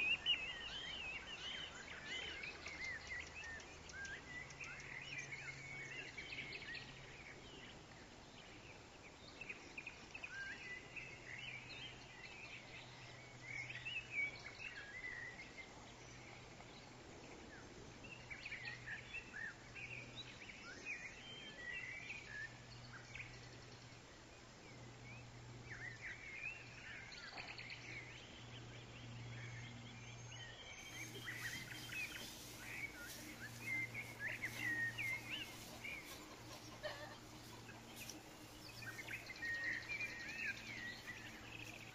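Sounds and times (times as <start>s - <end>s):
faint low hum: 0.0s - 41.9s
small birds chirping: 25.1s - 41.9s.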